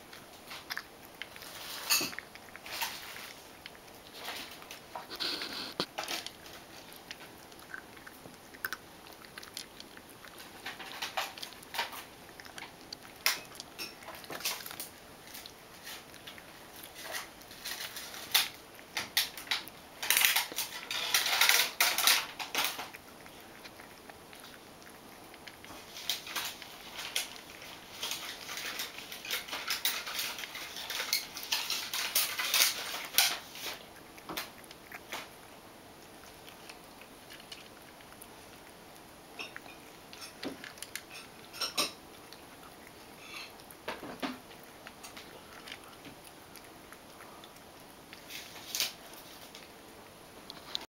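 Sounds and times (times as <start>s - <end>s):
cat crunching dry kibble: 0.0s - 50.8s
kibble clinking against bowl: 1.4s - 3.4s, 10.4s - 16.4s, 39.4s - 42.0s.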